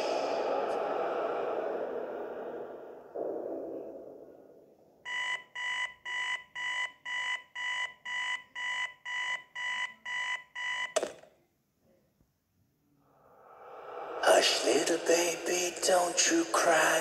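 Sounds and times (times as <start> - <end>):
electronic alarm beeping: 5.1 - 11.1
sharp click: 10.9 - 11.3.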